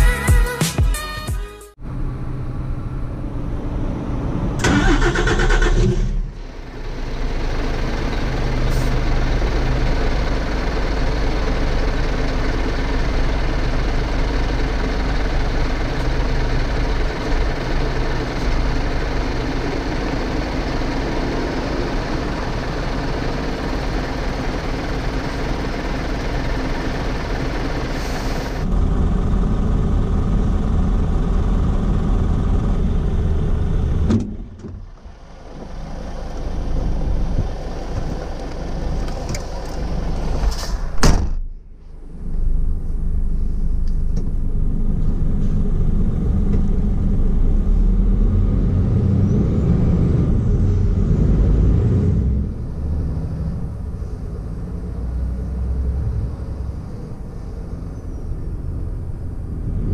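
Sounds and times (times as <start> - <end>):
diesel truck engine idling: 1.9 - 41.0, 50.0 - 59.9
diesel truck engine cranking: 4.2 - 30.8, 33.3 - 41.6.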